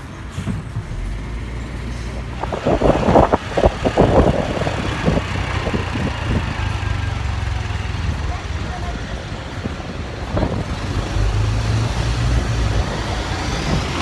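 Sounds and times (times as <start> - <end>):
motorcycle engine running: 2.6 - 9.4.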